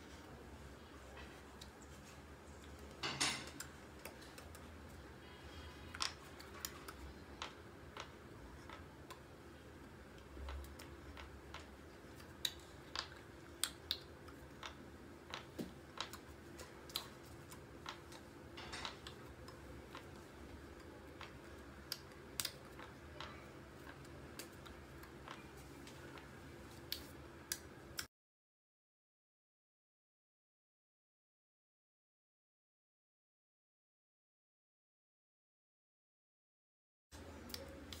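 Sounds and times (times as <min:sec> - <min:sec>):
faint steady hum: 0:00.0 - 0:28.1, 0:37.2 - 0:38.0.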